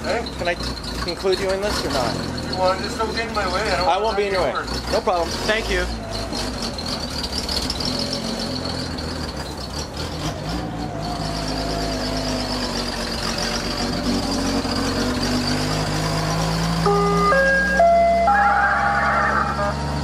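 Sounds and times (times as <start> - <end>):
truck engine idling: 0.0 - 20.0
high engine whine: 10.7 - 20.0.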